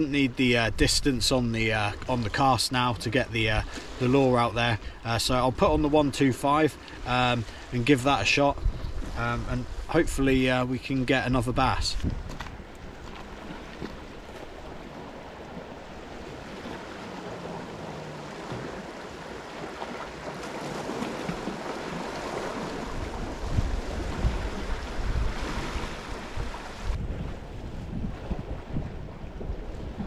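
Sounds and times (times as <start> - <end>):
wind buffeting microphone: 7.0 - 30.0
small waves washing over rocks: 12.3 - 27.0.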